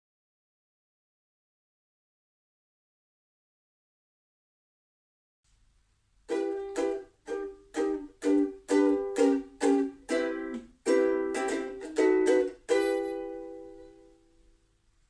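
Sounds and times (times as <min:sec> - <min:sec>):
ukulele strummed chords: 0:06.3 - 0:14.6.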